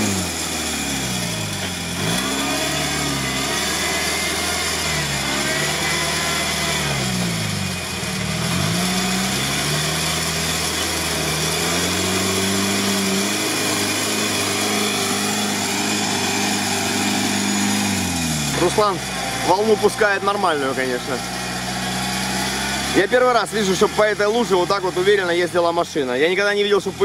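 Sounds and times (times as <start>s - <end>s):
off-road vehicle engine revving: 0.0s - 27.0s.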